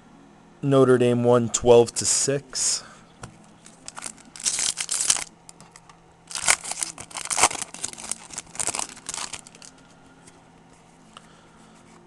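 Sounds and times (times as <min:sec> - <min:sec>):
foil wrapper tearing and crinkling: 0:03.6 - 0:09.8.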